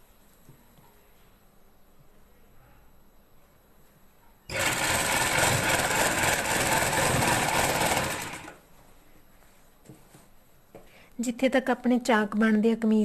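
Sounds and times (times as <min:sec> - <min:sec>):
sewing machine stitching cloth: 0:04.5 - 0:08.6.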